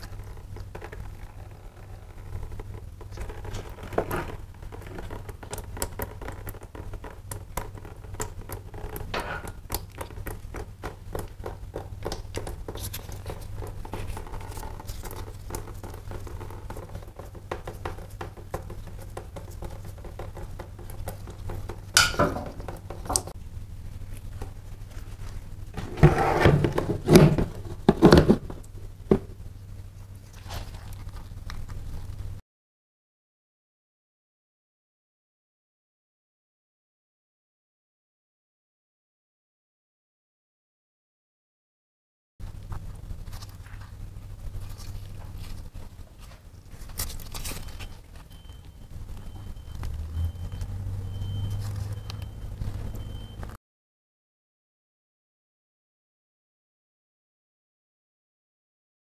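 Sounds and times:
steady low hum: 0.0 - 32.4, 42.4 - 53.5.

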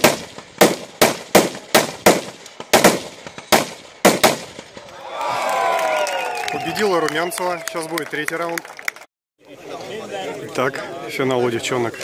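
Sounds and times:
rifle shots: 0.0 - 4.8
spectators cheering: 4.8 - 9.1.

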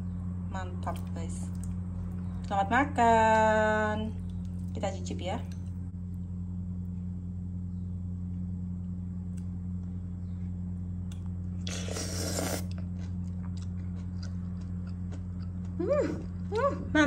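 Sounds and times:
steady low hum: 0.0 - 17.0
person chewing: 11.0 - 16.4.

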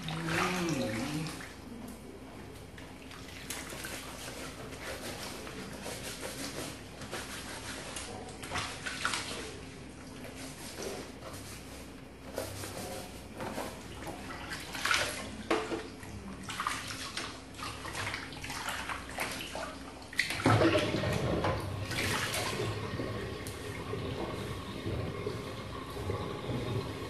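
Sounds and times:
water rushing: 0.0 - 1.4.

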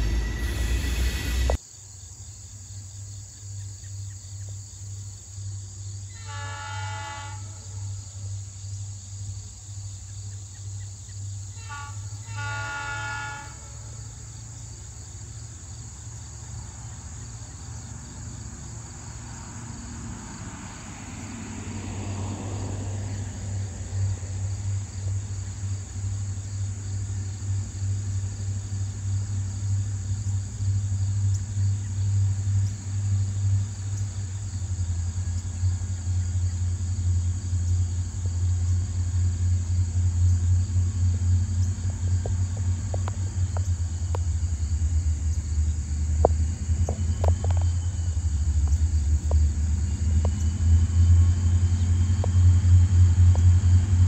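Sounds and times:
low engine rumble: 0.0 - 1.6, 14.0 - 54.0
rising and falling whoosh: 0.0 - 1.6
crickets chirring: 0.0 - 54.0.

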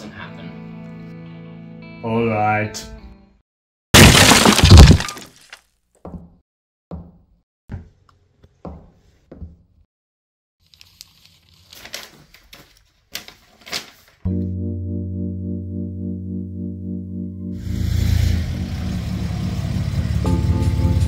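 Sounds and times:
footsteps on hard floor: 8.6 - 9.6
paper crackling and rustling: 10.6 - 14.3.

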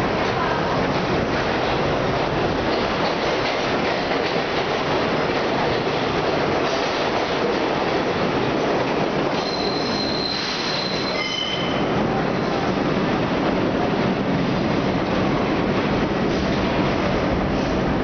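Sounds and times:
subway train wheels rumbling: 0.0 - 18.0
high-pitched wheel squeal: 9.4 - 11.8.

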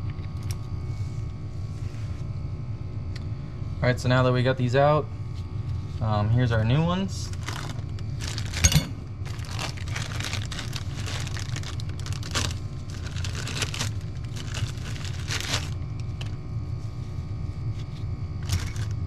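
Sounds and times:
steady low hum: 0.0 - 19.0
plastic packaging crinkling: 7.2 - 16.5, 18.4 - 19.0.

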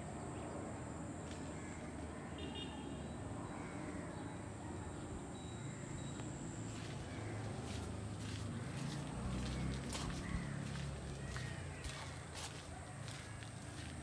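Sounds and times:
outdoor background noise: 0.0 - 14.0
faint high-pitched tone: 2.3 - 7.0.

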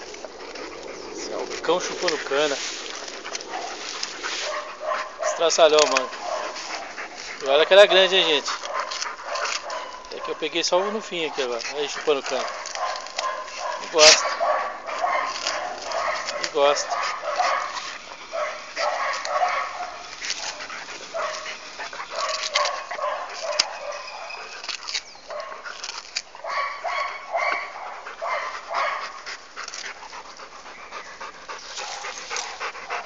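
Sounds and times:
dog chewing sugarcane: 0.0 - 33.0.

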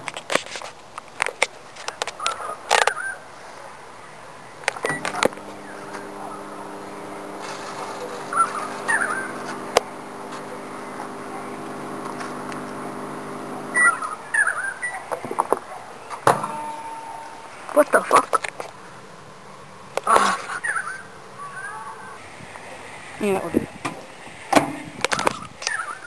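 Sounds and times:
birds chirping: 4.0 - 19.0, 19.6 - 22.2, 25.6 - 26.0
microwave oven humming: 4.8 - 15.0, 16.4 - 17.6.

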